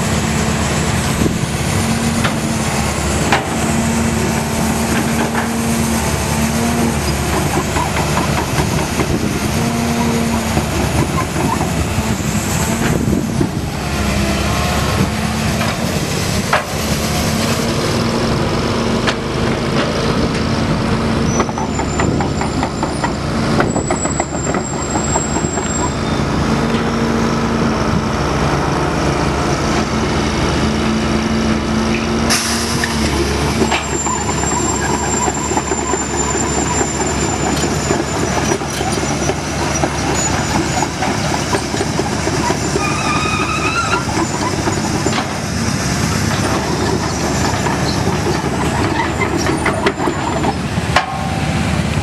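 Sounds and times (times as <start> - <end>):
excavator diesel engine running: 0.0 - 52.0.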